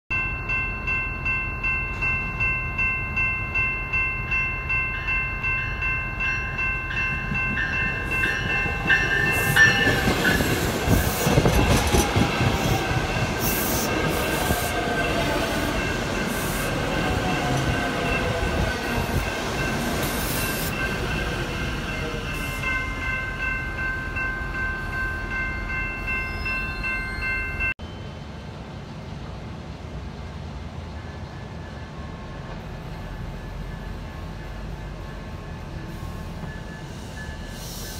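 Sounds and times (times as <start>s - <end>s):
warning bell ringing: 0.1s - 27.8s
electric train passing: 0.1s - 37.9s.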